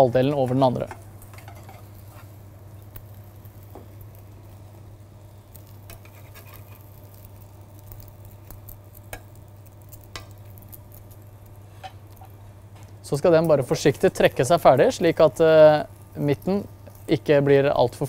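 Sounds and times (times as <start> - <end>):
steady low hum: 0.0 - 18.0
egg sizzling in butter: 0.1 - 18.0
metal spatula scraping frying pan: 0.8 - 2.4, 5.9 - 7.0.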